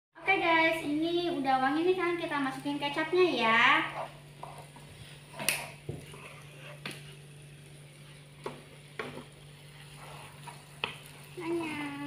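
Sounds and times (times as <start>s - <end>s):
noodles sizzling: 0.2s - 12.0s
spatula scraping and knocking pan: 3.8s - 7.2s, 8.4s - 11.4s.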